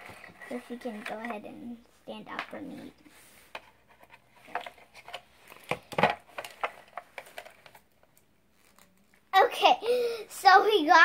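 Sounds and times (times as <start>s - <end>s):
toy packaging clicks and rustles: 4.4s - 9.4s.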